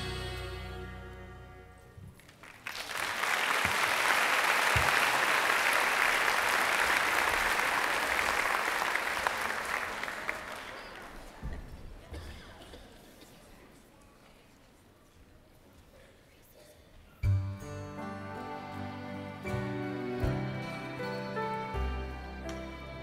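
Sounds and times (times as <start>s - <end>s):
song ending: 0.0s - 1.8s
audience applauding: 2.2s - 11.4s.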